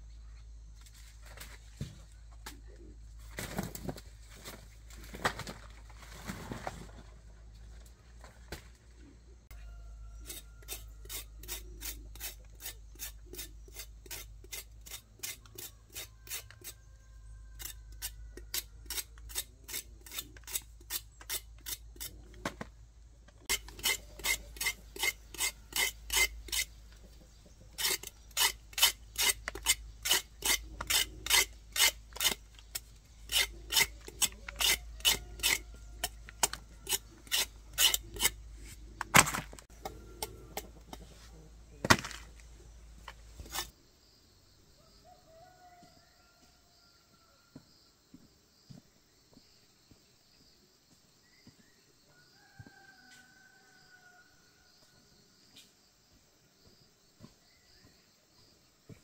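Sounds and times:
rhythmic rasping scraping strokes: 0:10.2 - 0:16.8, 0:23.4 - 0:26.8, 0:27.7 - 0:38.4.

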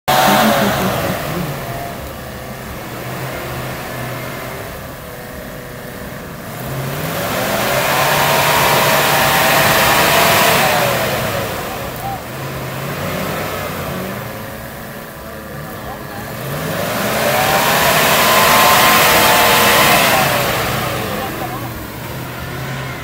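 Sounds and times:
engine pulling hard under load: 0:00.0 - 0:23.0
tyres churning mud: 0:00.0 - 0:23.0.

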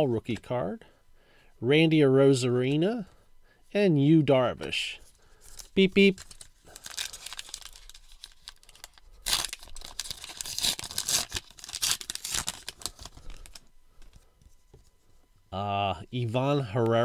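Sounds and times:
wrapper tearing and crinkling: 0:05.5 - 0:13.6.

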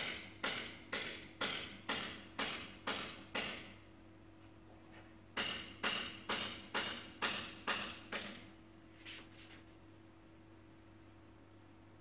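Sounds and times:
tool tapping on metal panel: 0:00.0 - 0:03.8, 0:05.4 - 0:08.5.

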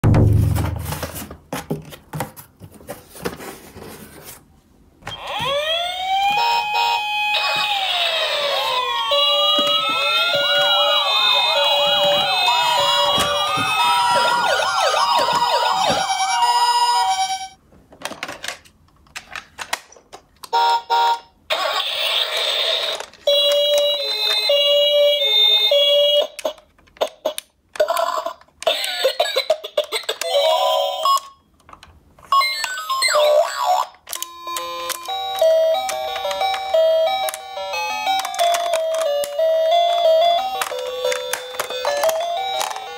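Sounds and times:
toy electronic sirens wailing: 0:05.1 - 0:17.6, 0:20.6 - 0:26.6, 0:32.4 - 0:42.9
plastic toys clattering: 0:17.9 - 0:20.4, 0:34.1 - 0:42.9.

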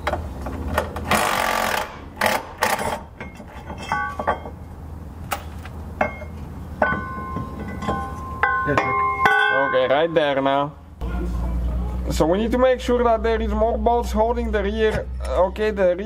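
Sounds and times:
sharp metal knocks: 0:05.3 - 0:10.1.

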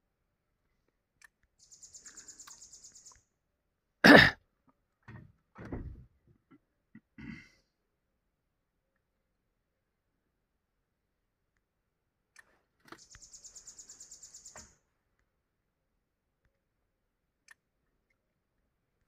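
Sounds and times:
person clearing throat: 0:04.0 - 0:04.4, 0:07.0 - 0:07.6.

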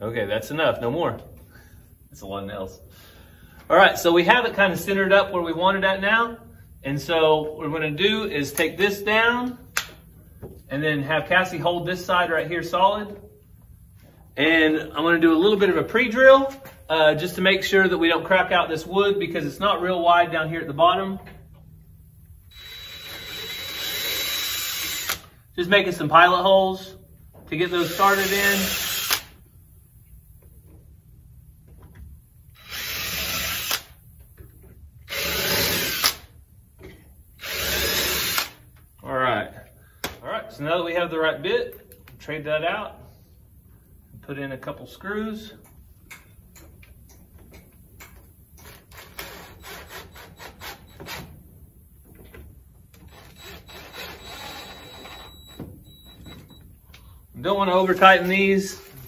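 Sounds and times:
cordless drill boring into wood: 0:22.5 - 0:25.3, 0:27.7 - 0:29.3, 0:32.6 - 0:33.9, 0:35.1 - 0:36.2, 0:37.4 - 0:38.6, 0:53.1 - 0:55.6
drill click: 0:22.5 - 0:25.3, 0:27.8 - 0:29.4.

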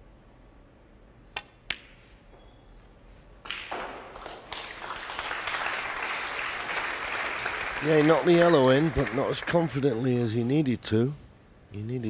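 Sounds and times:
snooker ball clicks: 0:01.3 - 0:02.0
audience applause: 0:04.1 - 0:10.0.

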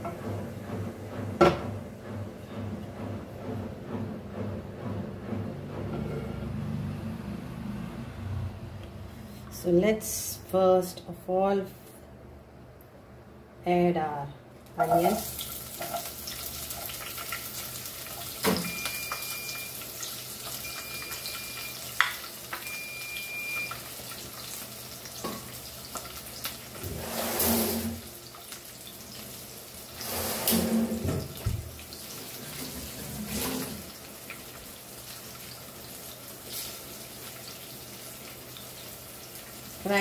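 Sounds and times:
onions sizzling in hot oil: 0:14.8 - 0:26.8, 0:28.0 - 0:30.0, 0:33.8 - 0:40.0.

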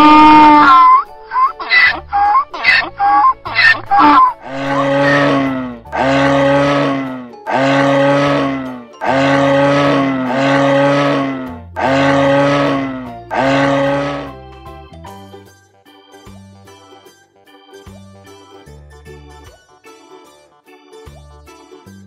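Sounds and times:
deer stag roaring: 0:00.0 - 0:14.4
donkey braying: 0:00.0 - 0:14.4.

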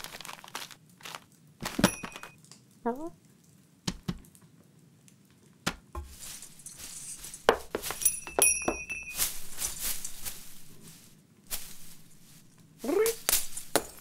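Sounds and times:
branches rustling: 0:00.0 - 0:02.1, 0:06.0 - 0:14.0
glass baubles clinking: 0:01.6 - 0:02.4, 0:06.0 - 0:10.8, 0:11.6 - 0:14.0.

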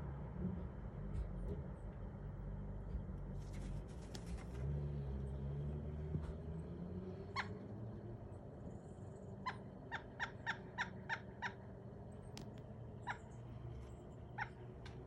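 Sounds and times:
woodpecker calling: 0:08.8 - 0:15.0.

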